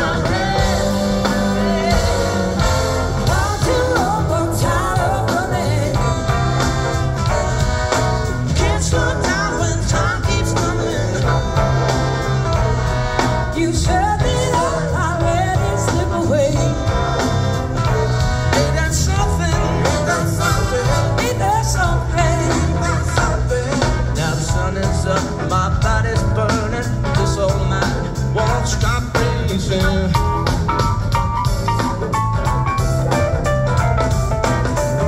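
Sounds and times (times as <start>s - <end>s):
person singing: 0.0s - 30.5s
live blues-rock band: 0.0s - 35.0s.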